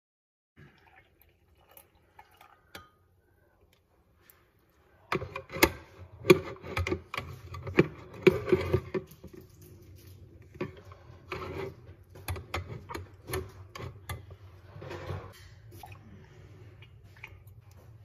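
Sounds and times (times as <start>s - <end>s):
liquid dripping: 0.6s - 3.0s.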